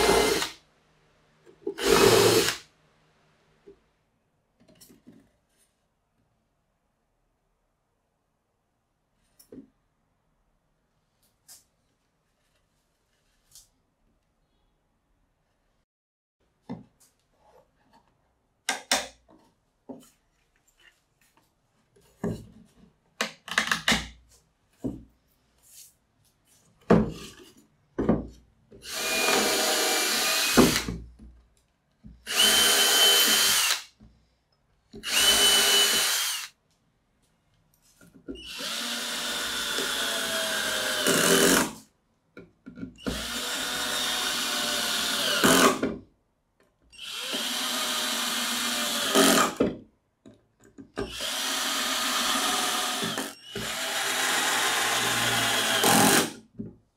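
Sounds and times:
cordless drill driving screws: 0:00.0 - 0:00.6, 0:01.8 - 0:02.6, 0:28.8 - 0:30.9, 0:32.3 - 0:33.9, 0:35.0 - 0:36.5, 0:38.4 - 0:41.7, 0:43.0 - 0:45.8, 0:47.0 - 0:49.6, 0:51.1 - 0:56.4.

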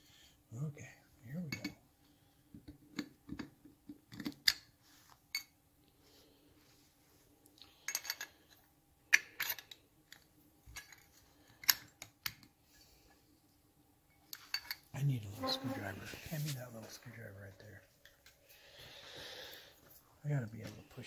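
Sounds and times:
metal parts and tools clinking: 0:07.8 - 0:08.5, 0:09.1 - 0:12.0, 0:14.3 - 0:14.9.

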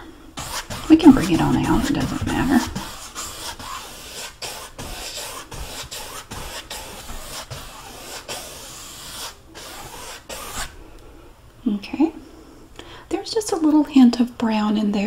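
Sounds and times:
paintbrush swishing on canvas: 0:00.4 - 0:10.7.

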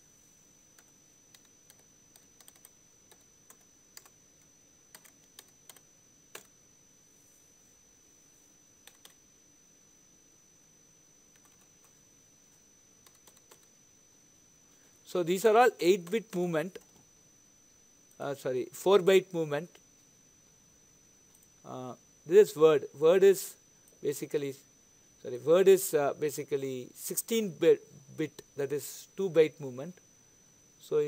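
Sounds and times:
typing on computer keyboard: 0:00.8 - 0:04.2, 0:04.9 - 0:06.5, 0:08.8 - 0:09.2, 0:11.4 - 0:12.0, 0:13.0 - 0:13.7.

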